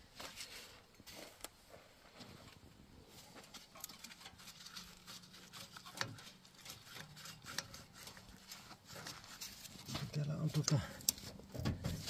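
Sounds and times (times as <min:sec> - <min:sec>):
tools scraping and clicking on engine parts: 0:03.2 - 0:12.0.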